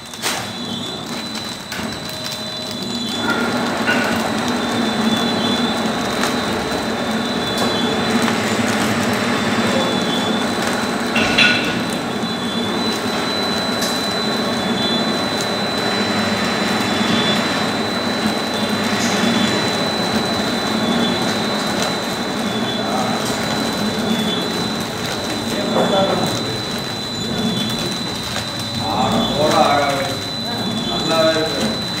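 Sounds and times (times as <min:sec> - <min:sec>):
high steady whine: 0:00.0 - 0:32.0
packing machine humming: 0:00.0 - 0:32.0
loud machine clack: 0:11.1 - 0:12.1.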